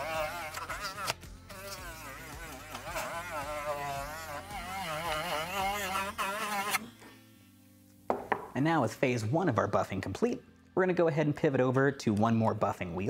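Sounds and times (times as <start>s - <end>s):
rotary tool high whine: 0.0s - 7.8s.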